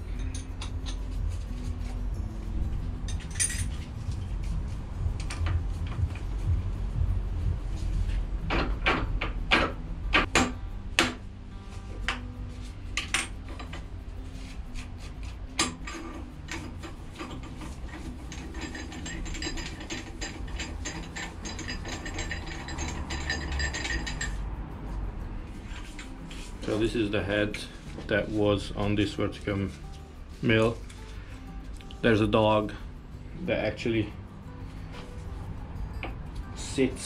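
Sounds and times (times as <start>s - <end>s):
metal knocks: 8.4s - 11.2s
rapid metal clicking: 15.6s - 24.4s.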